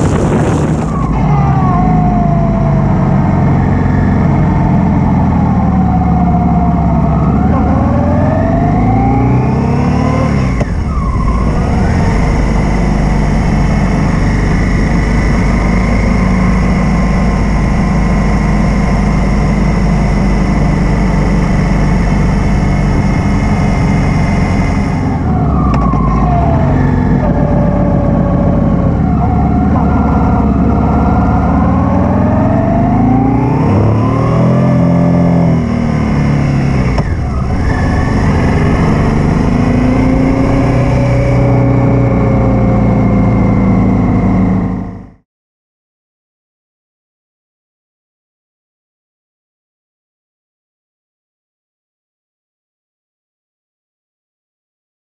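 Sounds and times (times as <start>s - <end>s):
wind rushing past: 0.0s - 1.8s
motorcycle engine accelerating: 0.0s - 45.2s.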